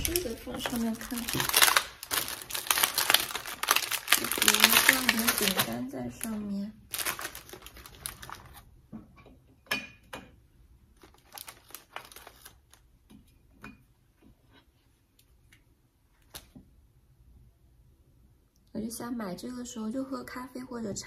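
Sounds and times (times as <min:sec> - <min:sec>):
wrapper crinkling: 0:00.0 - 0:08.7, 0:10.9 - 0:12.9.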